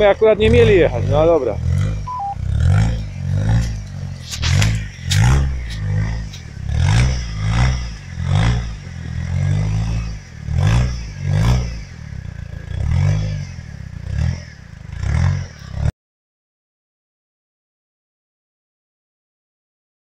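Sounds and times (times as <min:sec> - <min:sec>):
buggy engine revving: 0:00.0 - 0:15.9
clatters and scrapes: 0:02.8 - 0:07.6.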